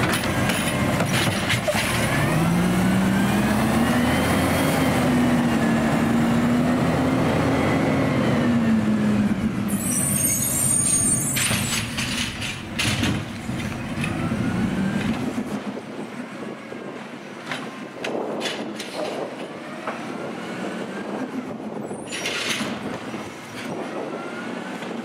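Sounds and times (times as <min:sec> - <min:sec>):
garbage truck running: 0:00.0 - 0:16.8
high squeal: 0:09.7 - 0:11.9.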